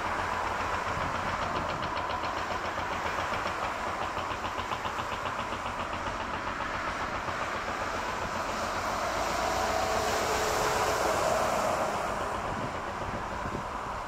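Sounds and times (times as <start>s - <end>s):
faint jet engine whine: 0.0s - 14.0s
jet engines rushing: 3.0s - 14.0s.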